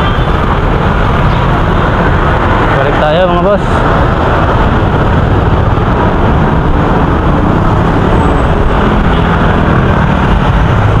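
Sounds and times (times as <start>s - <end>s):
busy road traffic: 0.0s - 11.0s.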